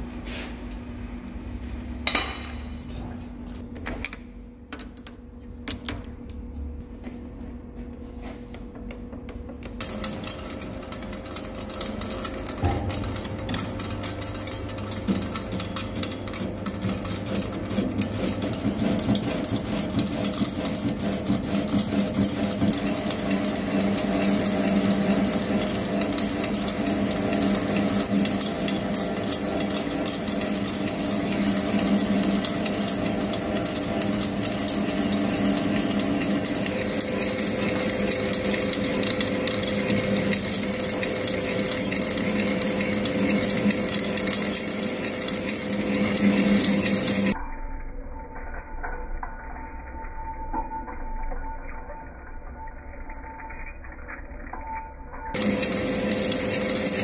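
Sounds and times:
lathe cutting metal rattle and whine: 9.8s - 47.4s, 55.4s - 57.0s.

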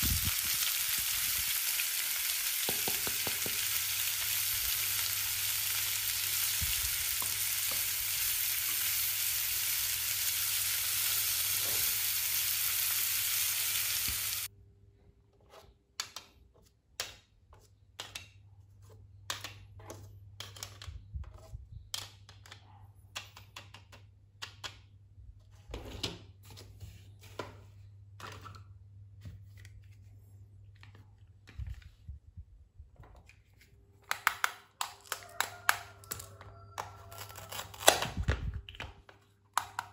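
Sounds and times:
toy grill sizzling hiss: 0.0s - 14.5s
plastic toys clicking and tapping: 21.8s - 24.9s, 34.0s - 37.4s, 38.6s - 39.9s.

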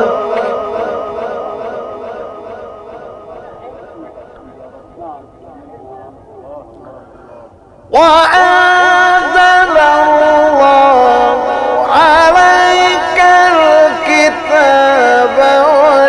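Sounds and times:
person reciting melismatic chant: 0.0s - 16.0s.

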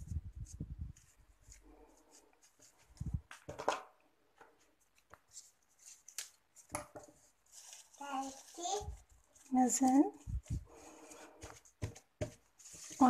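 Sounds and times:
paper rustling: 4.6s - 13.0s.

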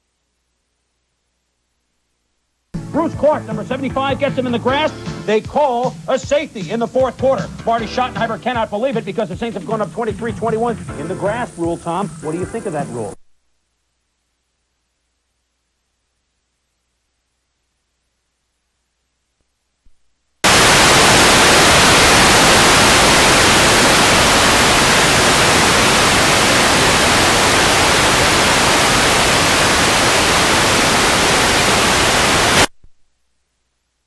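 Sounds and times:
static hiss: 0.0s - 34.0s.

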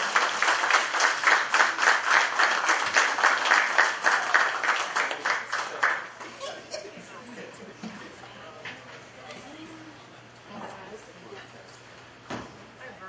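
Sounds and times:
people clapping: 0.0s - 6.4s.

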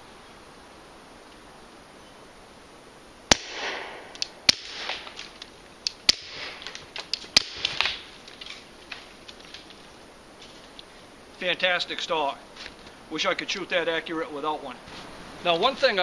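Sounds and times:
suppressed pistol shots with echo: 3.3s - 5.2s, 6.1s - 6.6s, 7.4s - 8.0s
sharp clicks: 4.1s - 9.8s.

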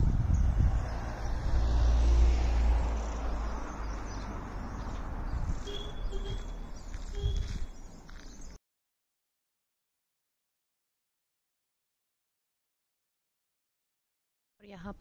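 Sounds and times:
vehicle rumble passing: 0.0s - 8.6s.

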